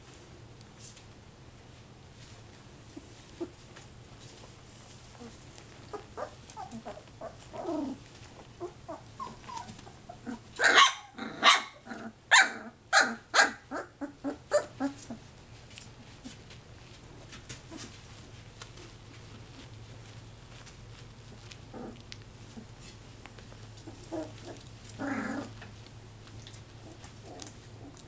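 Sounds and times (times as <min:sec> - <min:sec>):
puppies yipping and barking: 0:05.8 - 0:07.8, 0:08.6 - 0:15.2.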